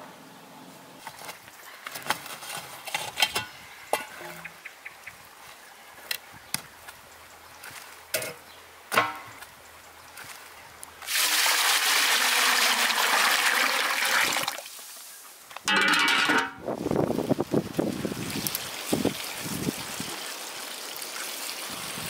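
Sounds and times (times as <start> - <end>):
water pouring: 11.0 - 15.1, 15.7 - 22.0.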